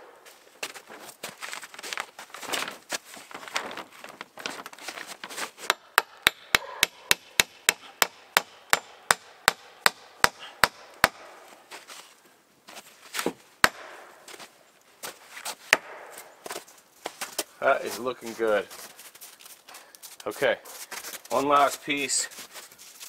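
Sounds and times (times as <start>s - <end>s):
rustling and scraping of wood: 0.0s - 5.7s, 11.3s - 23.0s
hammer driving nails into wood: 5.6s - 11.4s.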